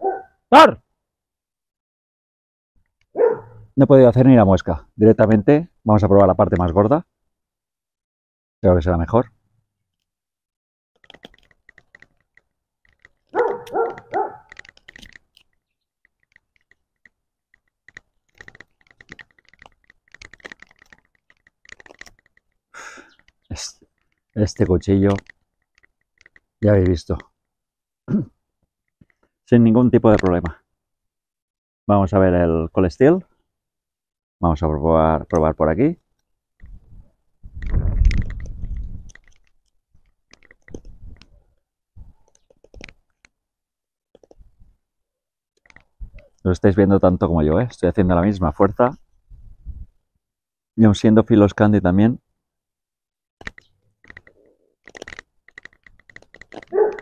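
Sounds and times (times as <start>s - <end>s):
wood crackling under knife blade: 11.0s - 27.2s.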